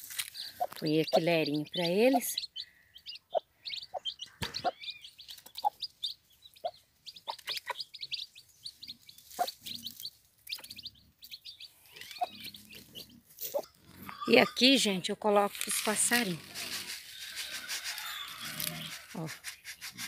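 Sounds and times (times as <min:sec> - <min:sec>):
chicks peeping: 0:00.2 - 0:14.5, 0:16.0 - 0:20.0
hen clucking: 0:00.4 - 0:15.1, 0:15.7 - 0:20.0.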